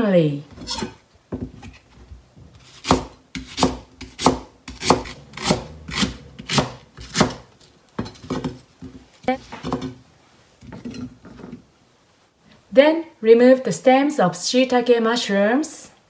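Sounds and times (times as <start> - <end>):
knife slicing on cutting board: 2.6 - 7.4.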